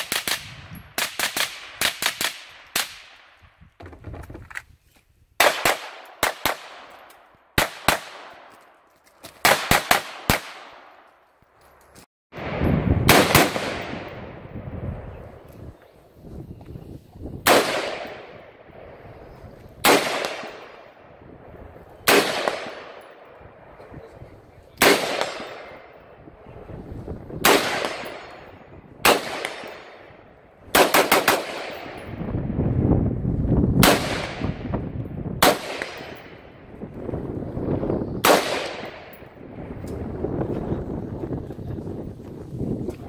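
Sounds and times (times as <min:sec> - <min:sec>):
rifle shots with ringing echo: 0:00.0 - 0:03.4, 0:05.4 - 0:08.6, 0:09.4 - 0:11.0, 0:12.4 - 0:15.4, 0:17.4 - 0:19.1, 0:19.8 - 0:21.2, 0:22.0 - 0:23.8, 0:24.8 - 0:26.5, 0:27.3 - 0:32.2, 0:33.8 - 0:36.7, 0:38.2 - 0:39.4.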